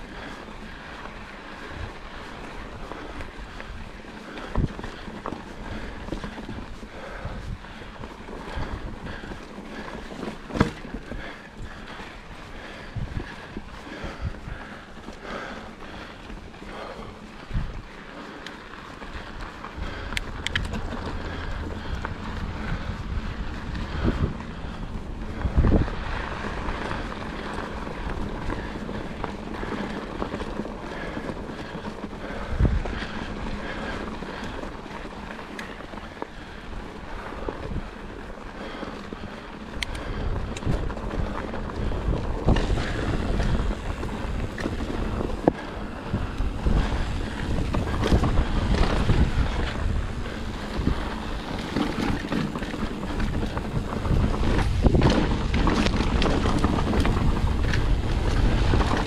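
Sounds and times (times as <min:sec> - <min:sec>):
bike tyres on dirt: 0:00.0 - 0:59.0
wind buffeting microphone: 0:00.0 - 0:59.0
bike knocks and rattles: 0:04.3 - 0:12.0, 0:37.3 - 0:59.0.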